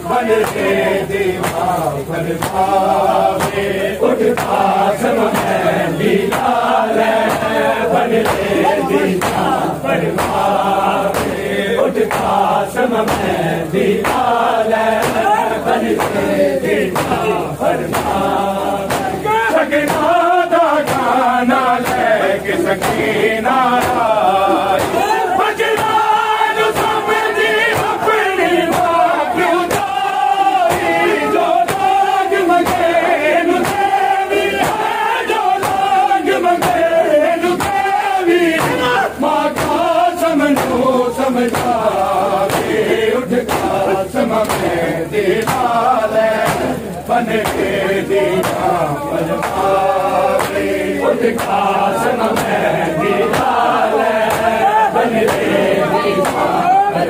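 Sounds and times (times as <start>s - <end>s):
men chanting in unison: 0.0s - 57.0s
hands slapping chests: 2.4s - 3.6s, 4.3s - 4.6s, 7.2s - 11.4s, 12.0s - 12.4s, 13.0s - 13.4s, 14.0s - 14.3s, 15.0s - 19.2s, 19.8s - 20.2s, 20.8s - 21.2s, 21.8s - 22.2s, 22.8s - 23.1s, 23.8s - 24.1s, 24.7s - 25.2s, 29.6s - 30.0s, 30.6s - 33.0s, 33.6s - 35.0s, 35.6s - 35.9s, 36.6s - 36.9s, 37.5s - 40.9s, 41.5s - 41.8s, 42.4s - 42.8s, 43.4s - 43.8s, 44.4s - 44.8s, 45.4s - 45.8s, 46.4s - 47.8s, 48.4s - 48.8s, 49.4s - 55.6s, 56.2s - 56.5s.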